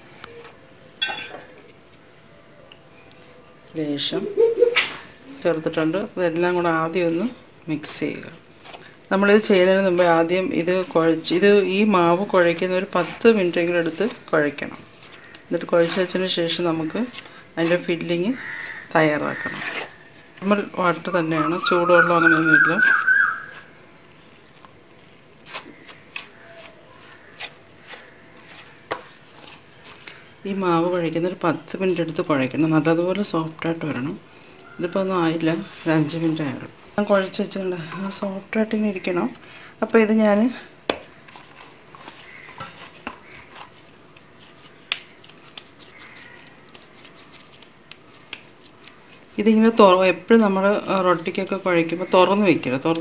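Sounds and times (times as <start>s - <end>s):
hand stirring dry flour in bowl: 5.0s - 34.1s, 34.9s - 53.0s
fingers scraping steel bowl: 9.5s - 22.6s.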